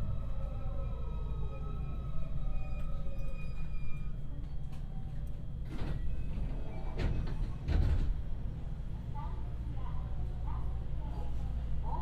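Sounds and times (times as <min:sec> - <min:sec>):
train carriage low rumble: 0:00.0 - 0:12.0
train doors thudding shut: 0:05.6 - 0:08.3.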